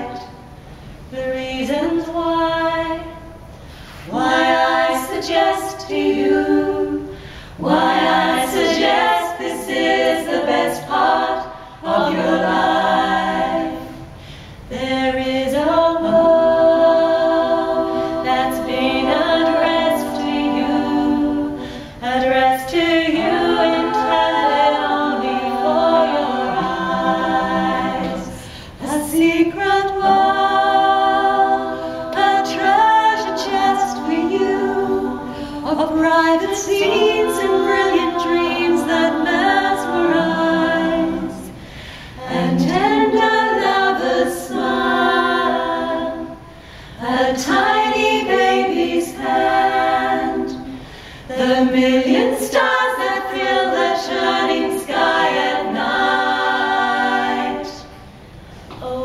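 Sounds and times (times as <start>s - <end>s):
women singing in harmony: 0.0s - 59.0s.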